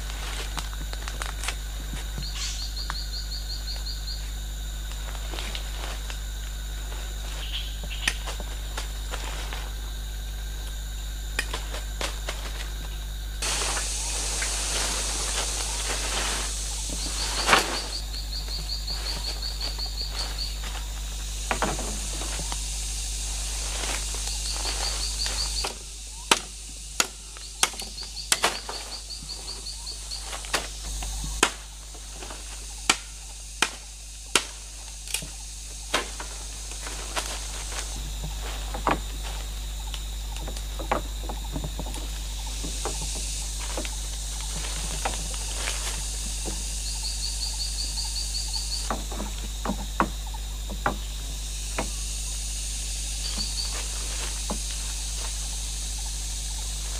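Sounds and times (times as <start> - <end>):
high insect drone: 0.0 - 56.9
sharp knocks of wooden poles: 25.4 - 28.9, 32.8 - 37.0, 48.8 - 52.0.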